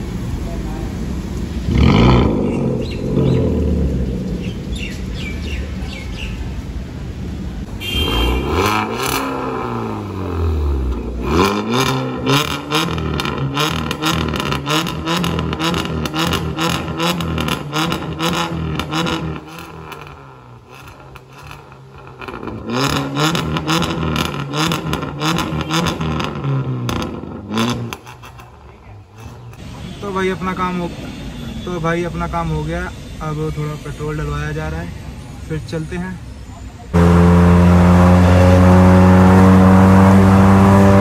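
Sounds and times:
car engine revving: 0:00.9 - 0:05.6, 0:07.4 - 0:29.4, 0:36.9 - 0:41.0
exhaust crackling pops: 0:10.8 - 0:29.6.

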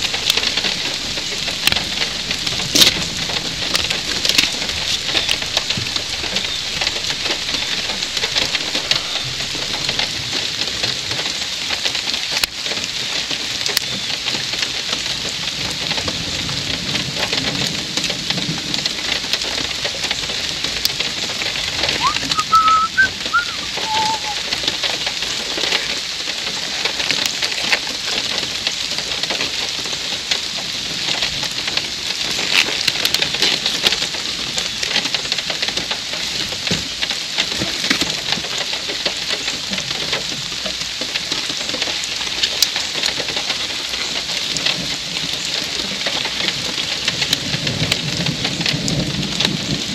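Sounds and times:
raindrops ticking close by: 0:00.0 - 0:49.9
steady rain: 0:00.0 - 0:49.9
bird call: 0:22.0 - 0:24.4.

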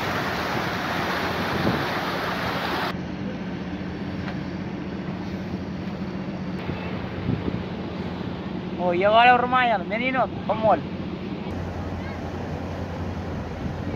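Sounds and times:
water splashing along hull: 0:00.0 - 0:02.9, 0:10.9 - 0:13.9
wind buffeting microphone: 0:00.0 - 0:02.9, 0:06.6 - 0:08.7
ship engine drone: 0:00.0 - 0:13.9.

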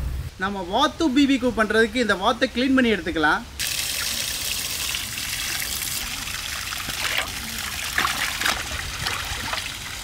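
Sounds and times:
water trickling and splashing: 0:03.6 - 0:10.0.

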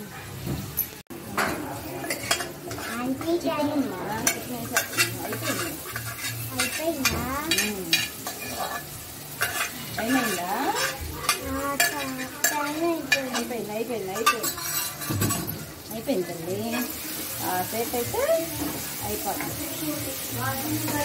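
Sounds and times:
curry sizzling in a pan: 0:00.0 - 0:21.0
spoon clicking and scraping a pan: 0:01.4 - 0:03.4, 0:04.2 - 0:15.7.

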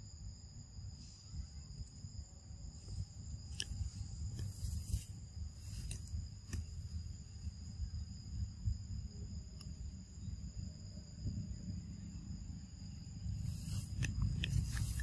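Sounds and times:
insects droning: 0:00.0 - 0:15.0
sharp clicks: 0:13.4 - 0:15.0.

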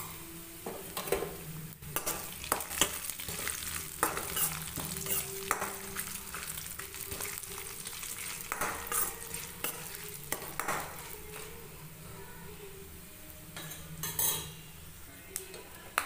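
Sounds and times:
spices sizzling in hot oil: 0:00.0 - 0:13.1
metal ladle scraping pan: 0:02.0 - 0:11.5.

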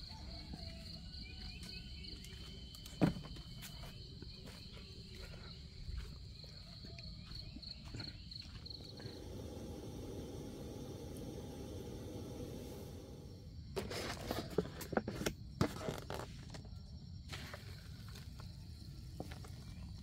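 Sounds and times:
insects chirping: 0:00.0 - 0:20.0
low steady hum: 0:08.4 - 0:14.9.

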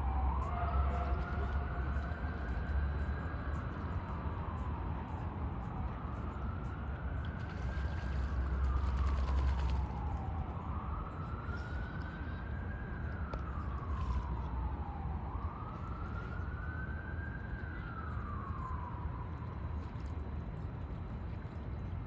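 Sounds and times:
emergency vehicle siren wailing: 0:00.0 - 0:19.8.

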